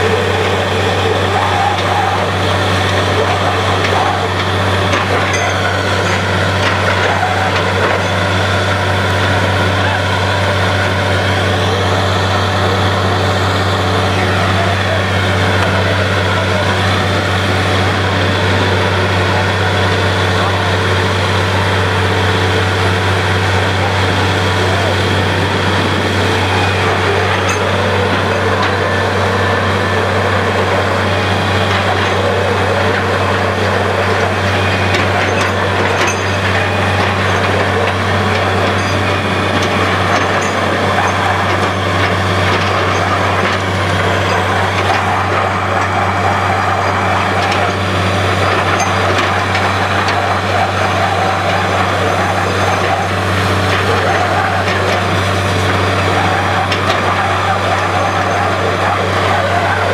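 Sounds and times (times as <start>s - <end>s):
drilling rig running: 0.0s - 59.9s.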